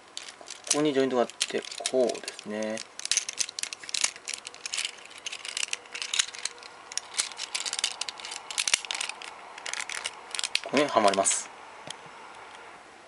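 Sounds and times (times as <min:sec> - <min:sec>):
plastic toy clicks and rattles: 0:00.2 - 0:11.4.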